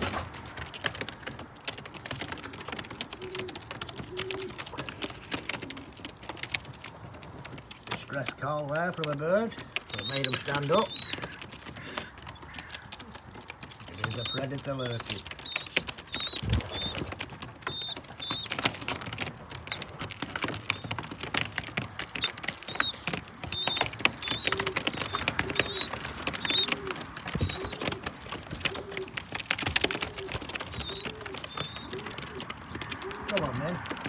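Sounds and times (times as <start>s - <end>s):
pigeon feet clicks and scuffles: 0.0s - 34.0s
pigeon cooing: 2.1s - 6.4s, 9.8s - 34.0s
wing flaps: 9.6s - 34.0s
small bird chirping: 9.9s - 11.3s, 13.9s - 17.1s, 17.7s - 19.9s, 22.2s - 27.9s.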